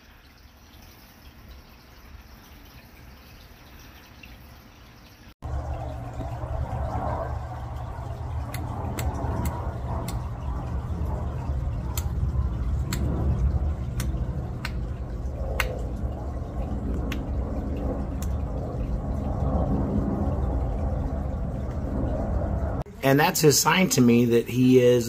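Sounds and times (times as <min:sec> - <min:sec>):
aquarium pump hum: 0:04.6 - 0:24.4.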